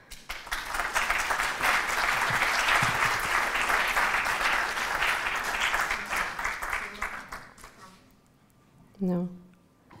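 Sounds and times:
audience applauding: 0:00.1 - 0:07.8.

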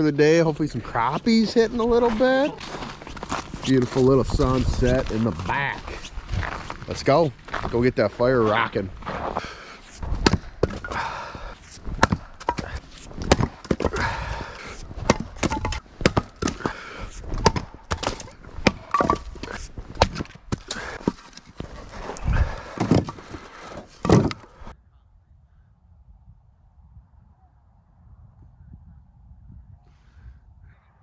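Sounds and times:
axe chopping firewood: 0:09.1 - 0:24.4.

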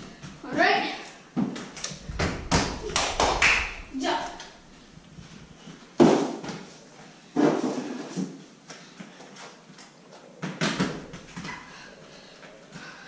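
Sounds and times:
children landing thuds on floor: 0:01.4 - 0:04.8, 0:10.4 - 0:11.7.

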